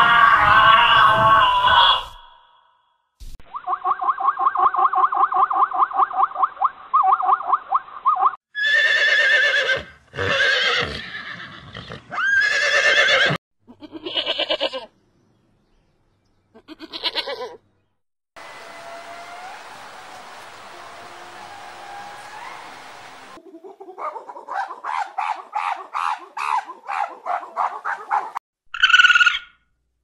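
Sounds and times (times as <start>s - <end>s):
horses whinnying: 8.6s - 13.4s
steady hiss: 18.4s - 23.4s.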